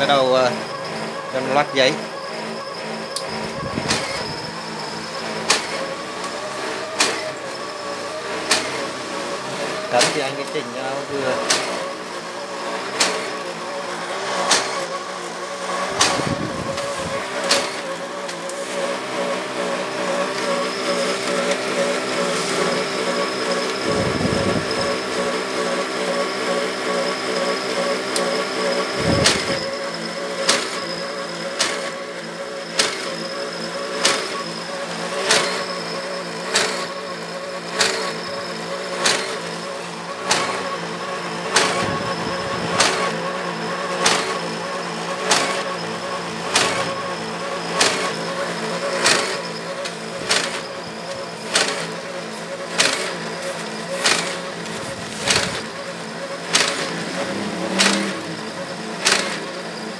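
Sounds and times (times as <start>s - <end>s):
geared motors whining: 0.0s - 59.9s
sharp machine click: 15.9s - 18.6s, 36.5s - 37.0s, 37.7s - 39.6s, 41.5s - 43.2s, 44.0s - 44.5s, 45.2s - 45.7s, 46.5s - 52.0s, 52.7s - 59.5s.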